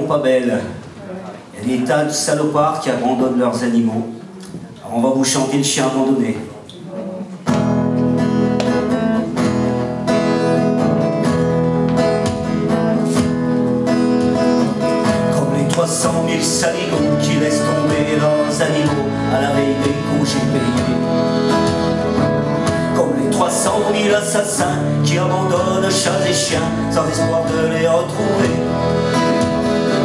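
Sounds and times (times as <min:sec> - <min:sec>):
acoustic guitar: 0:00.0 - 0:30.0
double bass: 0:07.7 - 0:30.0
accordion: 0:08.2 - 0:30.0.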